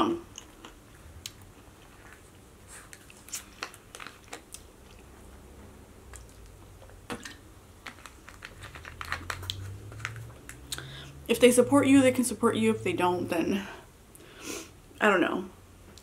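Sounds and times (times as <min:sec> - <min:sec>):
person chewing: 0:00.3 - 0:05.4.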